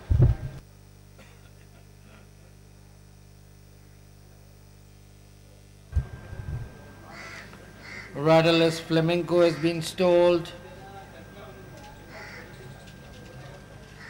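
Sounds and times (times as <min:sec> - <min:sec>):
loud low thump: 0:00.0 - 0:00.6
rustling noise: 0:00.0 - 0:00.6
electrical mains hum: 0:00.0 - 0:14.0.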